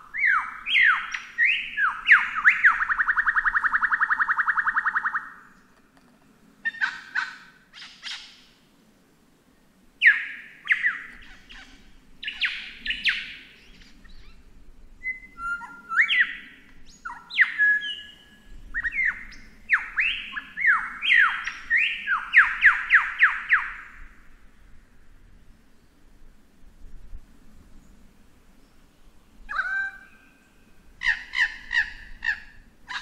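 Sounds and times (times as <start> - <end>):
lyrebird singing whistled notes: 0.1 - 5.4, 10.0 - 14.4, 15.0 - 23.8.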